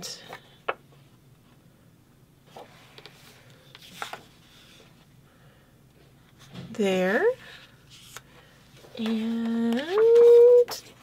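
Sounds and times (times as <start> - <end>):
paper rustling and sliding: 2.5 - 5.0, 7.4 - 10.4.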